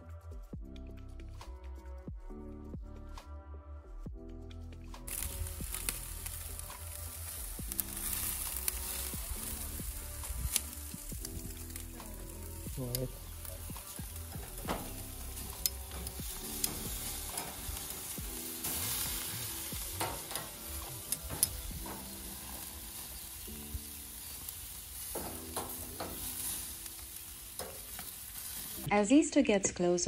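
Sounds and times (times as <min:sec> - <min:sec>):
meat sizzling on a grill: 0:05.0 - 0:28.9
metal spatula and tongs scraping: 0:05.1 - 0:28.9.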